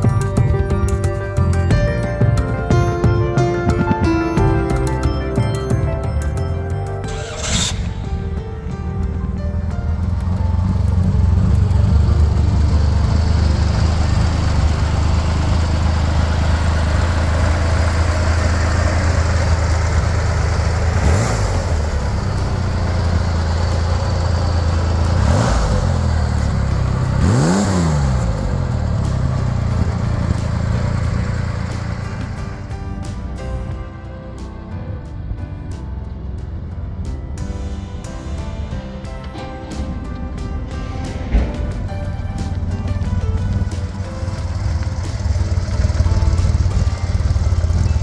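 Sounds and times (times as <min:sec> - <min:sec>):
car engine idling: 0:00.0 - 0:48.0
engine revving: 0:07.0 - 0:32.8, 0:39.4 - 0:48.0.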